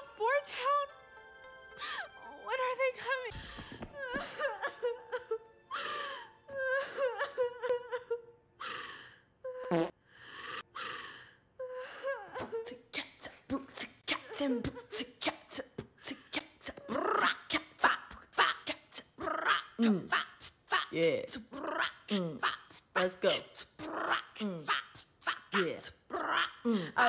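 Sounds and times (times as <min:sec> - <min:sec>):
girl whimpering and sobbing: 0:03.9 - 0:09.7, 0:10.4 - 0:15.2.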